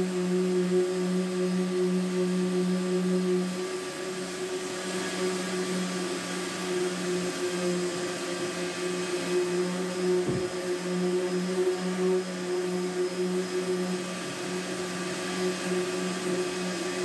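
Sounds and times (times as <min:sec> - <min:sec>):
electric sander humming: 0:04.7 - 0:17.0.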